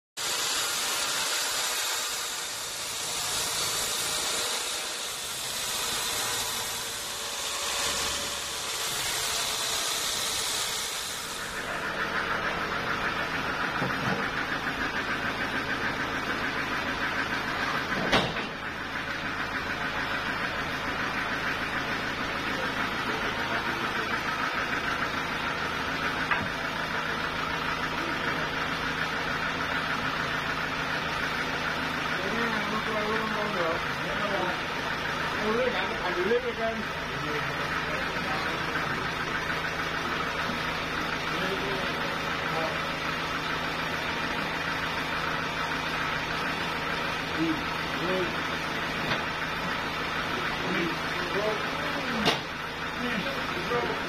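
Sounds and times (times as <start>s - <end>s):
band saw cutting log: 0.2s - 14.7s
sawmill mechanical hum: 0.2s - 54.0s.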